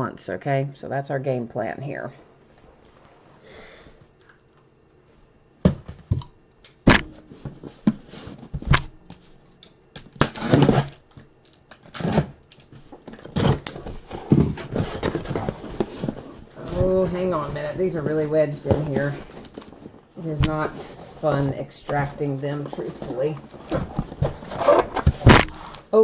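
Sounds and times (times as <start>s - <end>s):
cardboard knocks and thuds: 5.6s - 6.2s, 6.8s - 9.0s, 23.7s - 25.6s
cardboard scraping and rustling: 10.2s - 11.0s, 11.7s - 12.4s, 13.1s - 25.9s.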